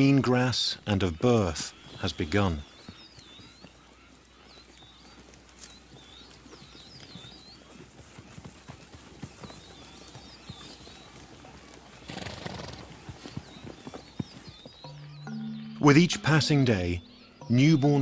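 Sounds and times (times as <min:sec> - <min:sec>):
hooves clopping on hard ground: 0:00.0 - 0:18.0
high chirps: 0:14.4 - 0:18.0.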